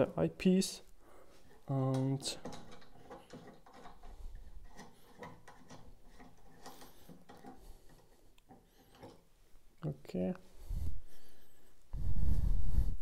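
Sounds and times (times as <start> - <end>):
cap twisting clicks and scrapes: 1.5 - 9.3.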